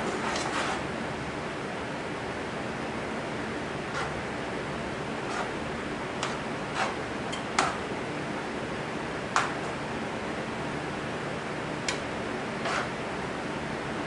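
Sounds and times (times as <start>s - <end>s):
spatula scraping skillet: 0.0s - 0.9s, 3.8s - 4.2s, 5.1s - 7.8s, 12.6s - 13.0s.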